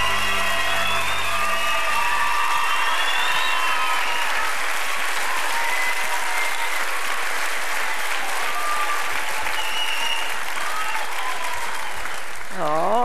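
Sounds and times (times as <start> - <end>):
music: 0.0 - 3.5
audience applauding: 0.0 - 13.0.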